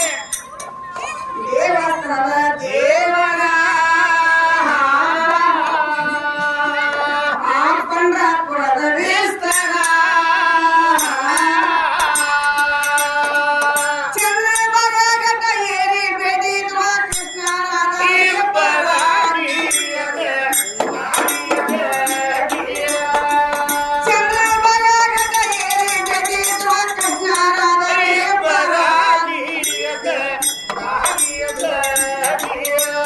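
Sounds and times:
hand cymbals: 0.0 - 1.1, 9.4 - 33.0
woman singing: 1.0 - 33.0.

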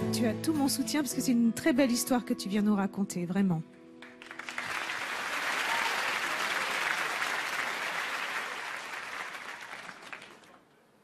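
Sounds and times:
audience applauding: 4.0 - 10.7.

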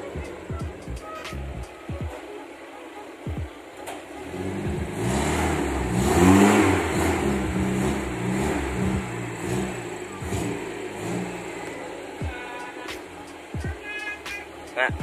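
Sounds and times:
jeep engine revving: 4.1 - 13.6.

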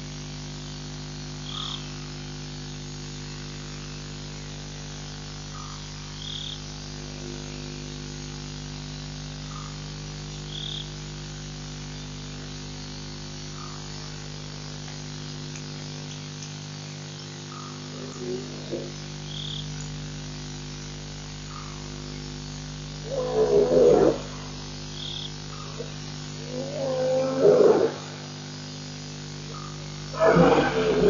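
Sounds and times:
steady low hum: 0.0 - 31.0
frogs calling: 1.4 - 2.2, 5.4 - 6.7, 9.4 - 11.0, 13.5 - 14.3, 15.5 - 20.0, 21.4 - 28.7, 29.4 - 31.0.

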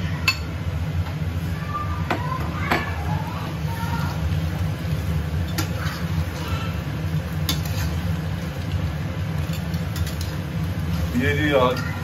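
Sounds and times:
gas burner rumble: 0.0 - 12.0
metal spatula scraping wok: 7.4 - 8.2.

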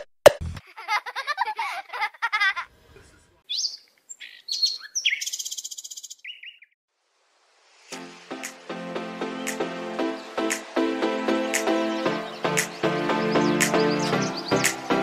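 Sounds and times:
bird trill: 3.5 - 6.8, 11.5 - 15.0
bird whistles and tweets: 3.5 - 6.8
warbling bird chirps: 3.5 - 6.8.

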